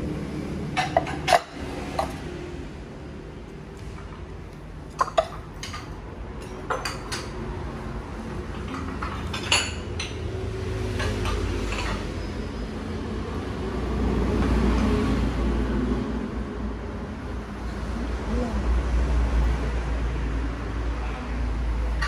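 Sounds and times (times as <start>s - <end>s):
ceramic dishes clinking: 0.8s - 2.2s, 4.9s - 7.3s, 8.5s - 10.2s.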